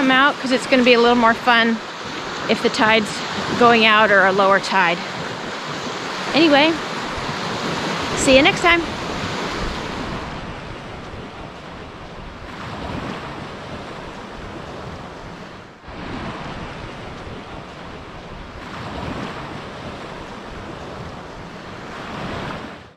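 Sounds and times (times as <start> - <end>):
waves washing on shore: 0.0 - 22.9
wind: 0.0 - 22.9.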